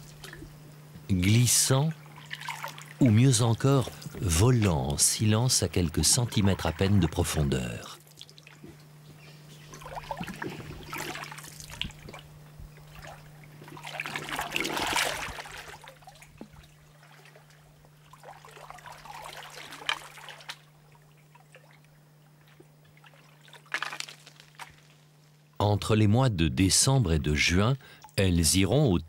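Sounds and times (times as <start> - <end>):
faint low hum: 0.0 - 29.0
water splashing around boat: 1.9 - 8.9, 9.6 - 25.2.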